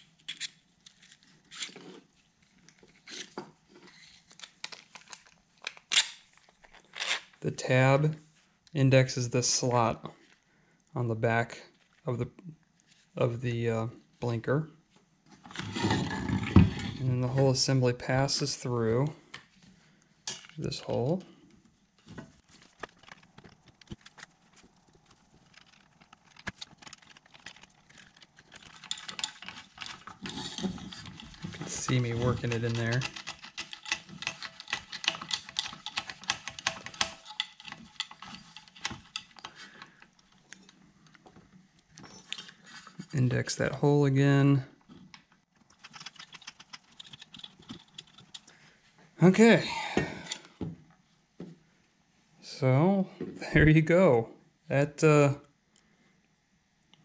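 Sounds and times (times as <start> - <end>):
plastic handling rubs and knocks: 22.0 - 40.4
hard plastic parts clicking: 25.1 - 42.6, 45.0 - 48.5.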